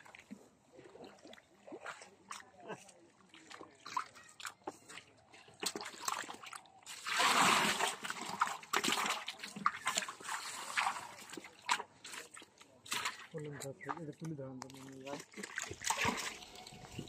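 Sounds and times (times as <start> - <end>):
fish splashing in water: 0.0 - 13.4, 15.2 - 17.0
wet slaps of fish and mud: 3.8 - 6.6, 7.2 - 10.1, 11.4 - 13.3
loud splash: 7.0 - 11.8, 15.4 - 16.6.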